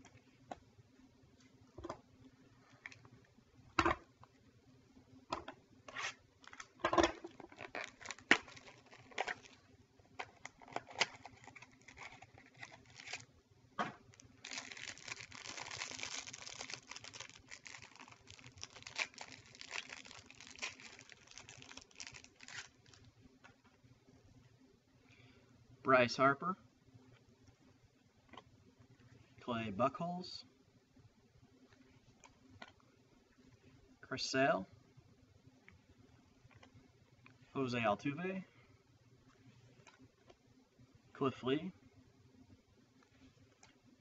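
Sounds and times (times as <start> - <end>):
card pack wrapper crinkling: 6.0 - 9.6, 10.2 - 13.3, 14.1 - 23.1.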